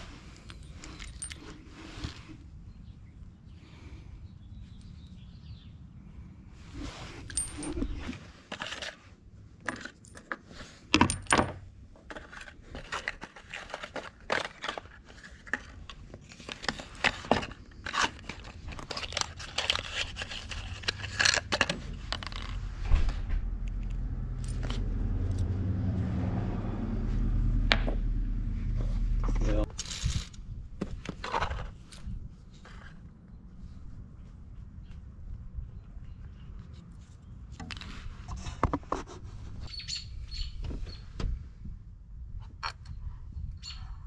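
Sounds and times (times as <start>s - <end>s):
low hum: 20.4s - 30.6s.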